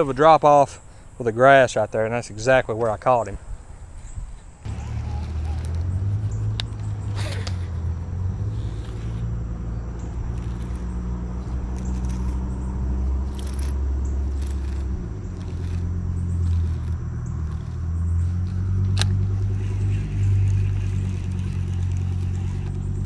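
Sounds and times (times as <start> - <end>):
low engine rumble: 4.6 - 23.0.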